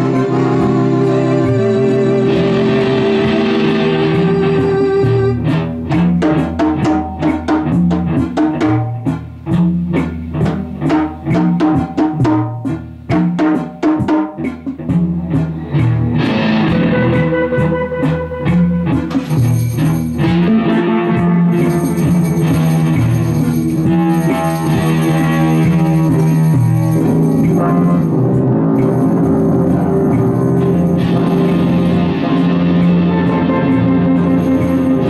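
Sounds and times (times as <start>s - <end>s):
band playing drums bass and guitar: 0.0s - 35.0s.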